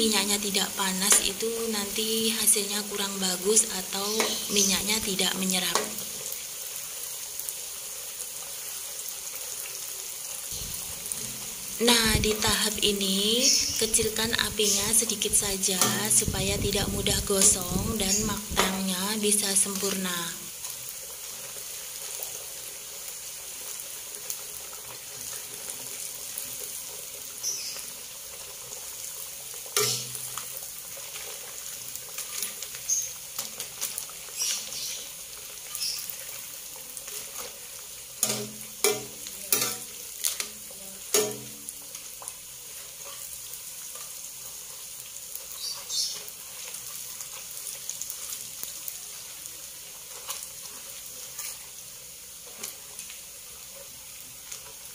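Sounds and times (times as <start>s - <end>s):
crackers sizzling in hot oil: 0.0s - 54.9s
metal ladle knocking on pan: 38.2s - 39.9s, 41.1s - 41.6s.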